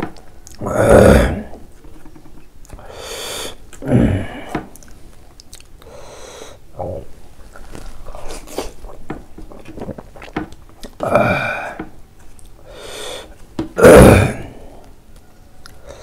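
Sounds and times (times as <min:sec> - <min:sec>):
man chewing with wet smacks: 0:00.0 - 0:00.6, 0:01.6 - 0:02.9, 0:04.7 - 0:05.9, 0:07.4 - 0:11.1, 0:11.8 - 0:13.6, 0:14.8 - 0:16.0
loud throaty sound: 0:00.6 - 0:01.6, 0:13.8 - 0:14.8.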